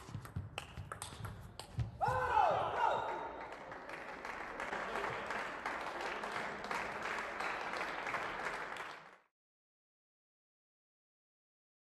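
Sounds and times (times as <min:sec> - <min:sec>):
spectators clapping: 0:02.4 - 0:09.3.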